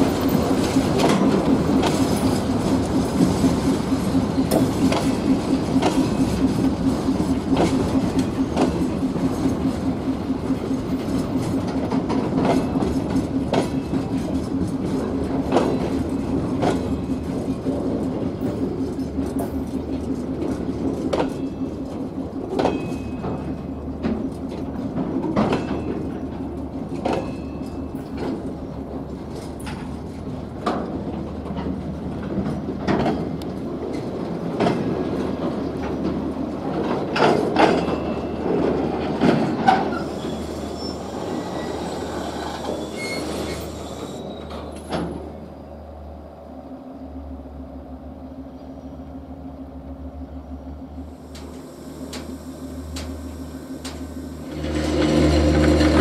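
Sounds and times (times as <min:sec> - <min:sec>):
wheels clacking over rail joints: 0:00.0 - 0:45.6, 0:51.1 - 0:56.0
freight train rumbling past: 0:00.0 - 0:56.0
high-pitched wheel squeals: 0:39.7 - 0:44.9.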